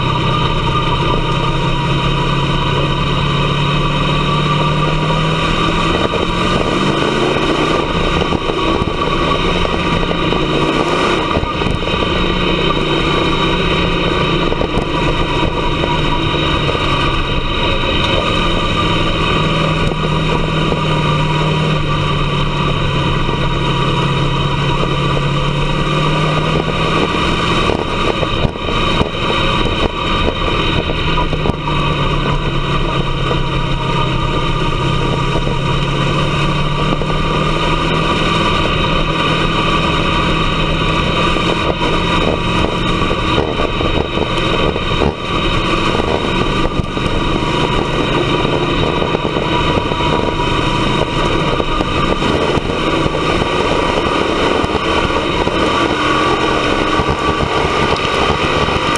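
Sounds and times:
race car engine running: 0.0s - 58.9s.

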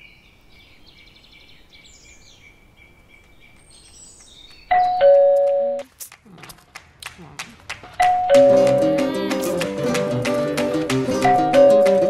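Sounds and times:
birds chirping: 0.0s - 5.4s
two-tone doorbell ringing: 4.7s - 5.8s, 8.0s - 8.8s, 11.3s - 12.0s.

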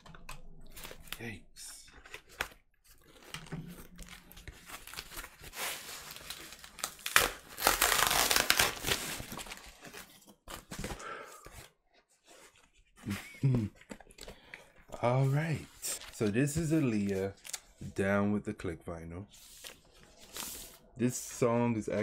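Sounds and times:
packing paper crinkling: 1.9s - 10.8s.

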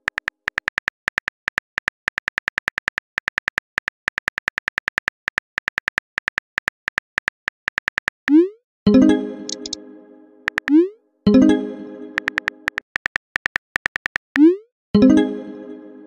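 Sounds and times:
phone keyboard tap clicks: 0.0s - 8.4s, 10.5s - 10.8s, 12.2s - 14.4s.

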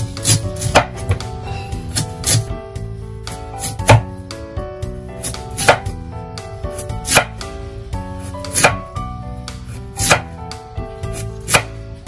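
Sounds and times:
background music: 0.0s - 12.0s
cleaver chopping on cutting board: 0.2s - 1.3s, 1.9s - 2.5s, 3.6s - 4.1s, 5.2s - 5.9s, 7.0s - 7.4s, 8.5s - 8.8s, 10.0s - 10.4s, 11.1s - 11.8s.

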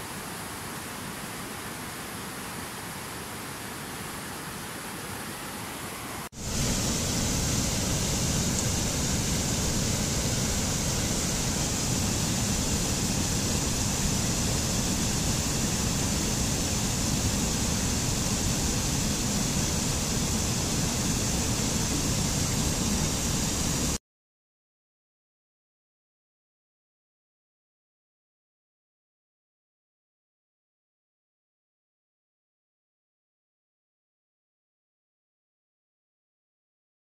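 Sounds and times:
fast-flowing water rushing: 0.0s - 24.0s
quiet water hiss: 0.0s - 24.0s
water cascading over rocks: 0.0s - 24.0s.

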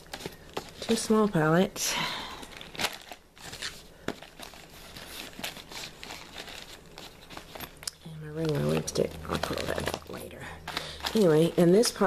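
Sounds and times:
makeup being packed: 2.4s - 12.0s.

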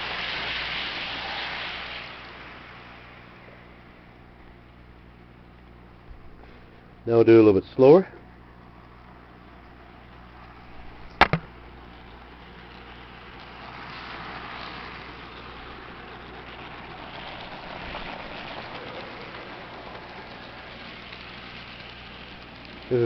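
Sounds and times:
model train running on track: 0.0s - 23.0s
sharp knock: 11.2s - 11.5s.

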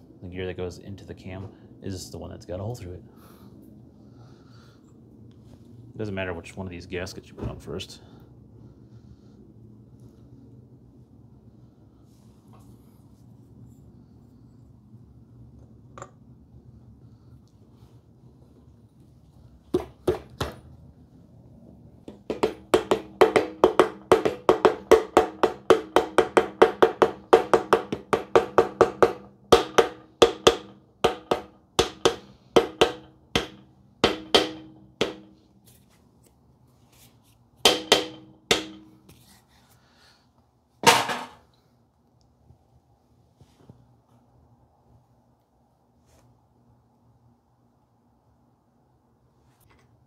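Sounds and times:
rubber mallet knocking metal: 22.1s - 35.4s, 37.7s - 39.1s.

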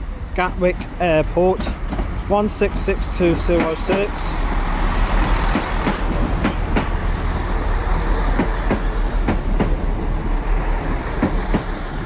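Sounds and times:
train low rumble: 0.0s - 12.0s
wheels clicking over rail joints: 5.1s - 7.1s.

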